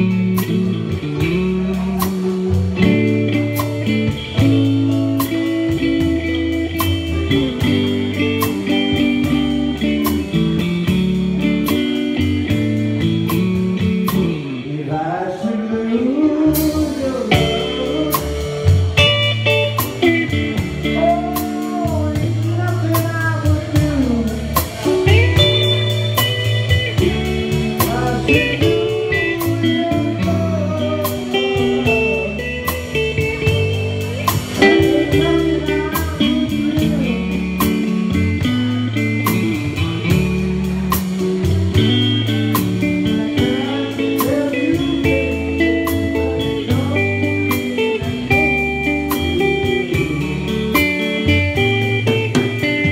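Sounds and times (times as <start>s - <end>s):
drum kit steady beat: 0.0s - 14.6s, 16.5s - 52.9s
electric guitar playing lead: 0.0s - 52.9s.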